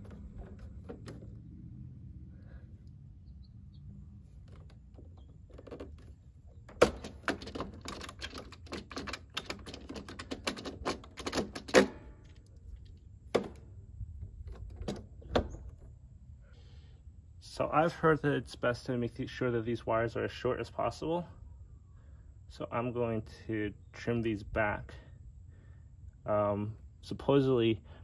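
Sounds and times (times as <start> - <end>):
clicks and taps in metal panel: 6.7 - 12.4.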